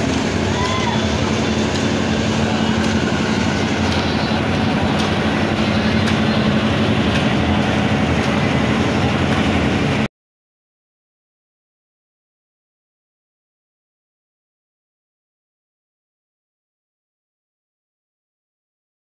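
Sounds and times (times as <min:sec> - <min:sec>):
machine hum and rumble: 0:00.0 - 0:10.1.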